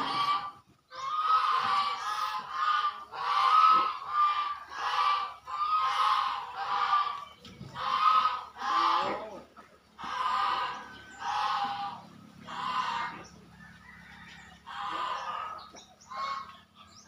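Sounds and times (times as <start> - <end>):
animal honking calls: 0.0 - 9.4, 10.0 - 13.4.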